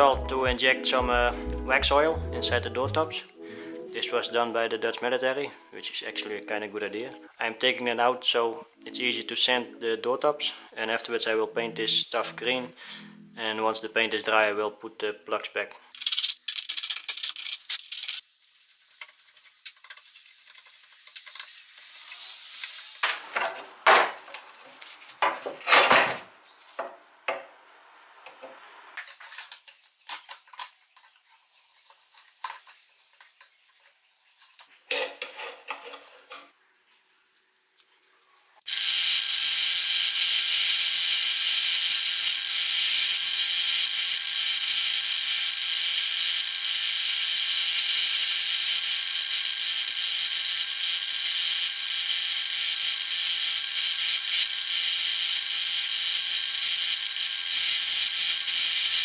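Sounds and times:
metal parts clicking and scraping: 15.9s - 23.6s
drill motor hum: 38.7s - 59.0s.

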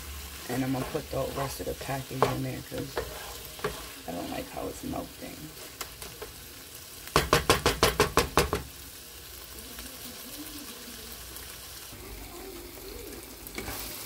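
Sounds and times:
food sizzling in pan: 0.0s - 14.0s
spatula knocking on frying pan: 7.1s - 8.7s.

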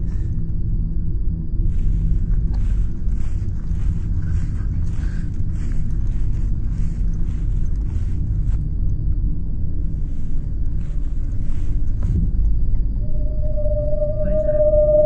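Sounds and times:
low microphone rumble: 0.0s - 15.0s
footsteps through grass: 1.6s - 8.8s, 9.8s - 12.4s.

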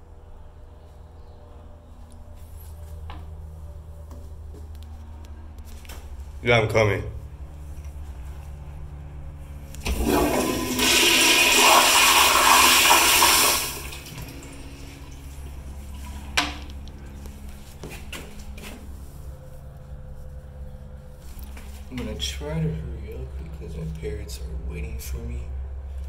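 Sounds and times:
low steady hum: 0.0s - 26.0s
toilet flushing water rush: 9.8s - 16.2s.

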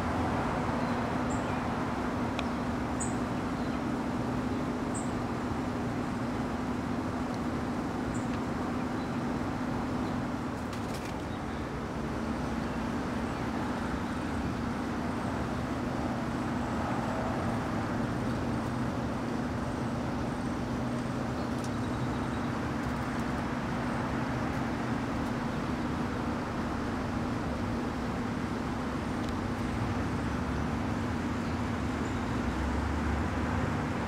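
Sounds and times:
low hum with hiss: 0.0s - 34.0s.

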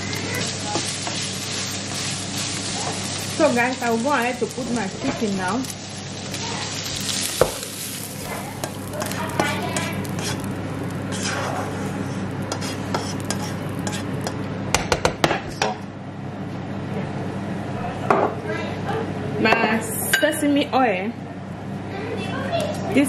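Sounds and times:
utensil scraping a frying pan: 0.0s - 5.5s, 6.3s - 14.4s
food sizzling: 0.0s - 14.6s
steady low hum: 0.0s - 23.0s.

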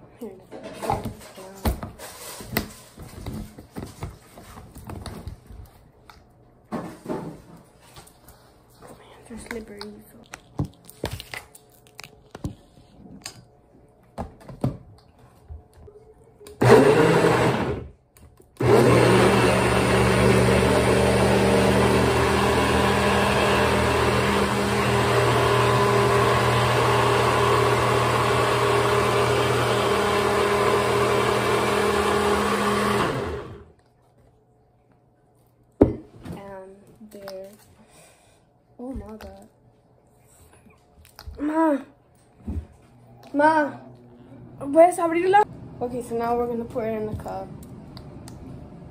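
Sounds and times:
blender running: 16.6s - 17.9s, 18.6s - 33.7s.

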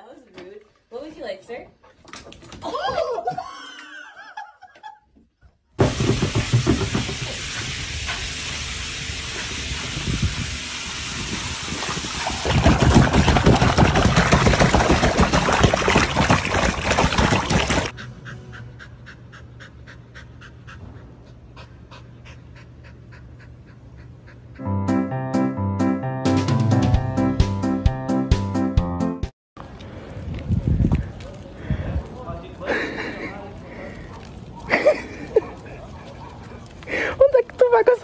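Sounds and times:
water splashing: 5.8s - 17.9s.

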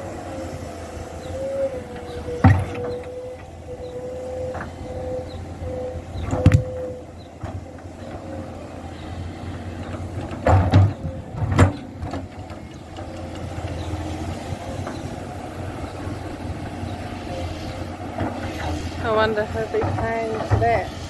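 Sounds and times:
excavator diesel engine running: 0.0s - 21.0s.

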